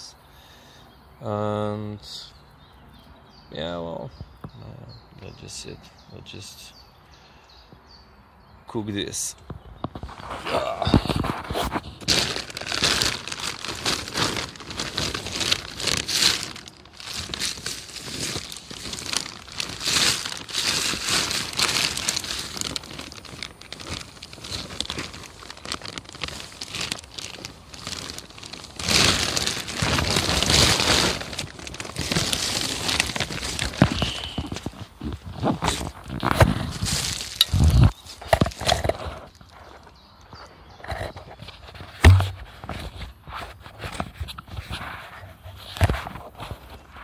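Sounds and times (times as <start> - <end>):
dry material crinkling: 10.0 - 47.0.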